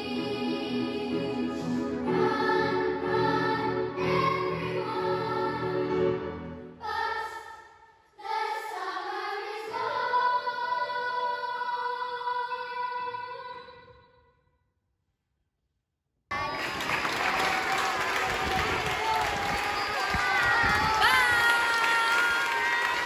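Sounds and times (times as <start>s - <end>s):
children's choir singing: 0.0s - 13.9s, 16.3s - 23.0s.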